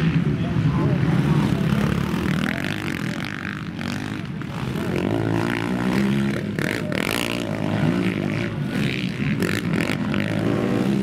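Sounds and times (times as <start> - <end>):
quad engines revving: 0.0 - 11.0.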